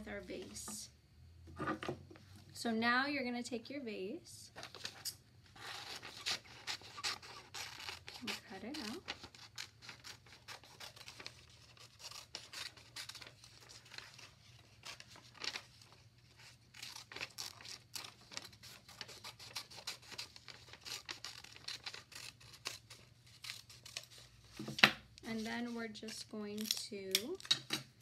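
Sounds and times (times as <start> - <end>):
paper rustling: 4.6 - 26.8
scissors snipping paper: 6.0 - 24.3, 25.3 - 27.6.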